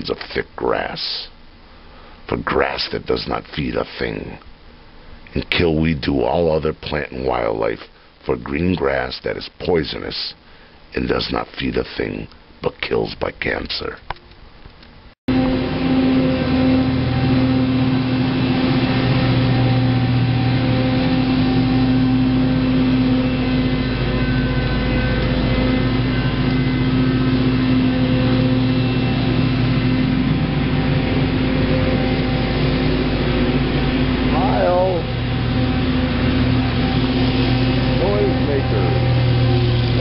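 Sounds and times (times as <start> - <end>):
petrol engine droning: 15.3 - 40.0.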